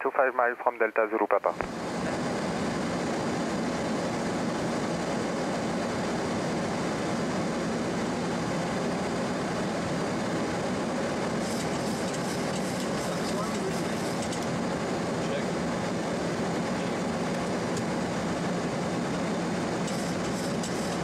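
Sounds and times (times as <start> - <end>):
rush of cockpit airflow: 1.7 - 21.0.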